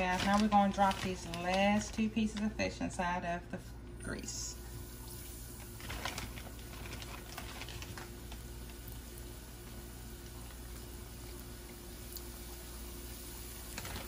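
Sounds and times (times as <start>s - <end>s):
fish frying in hot oil: 4.8s - 14.0s.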